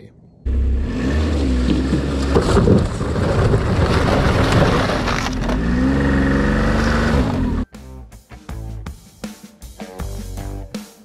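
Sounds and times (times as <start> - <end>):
snowmobile engine running: 0.5 - 7.6
track clattering over wooden boards: 1.6 - 5.7.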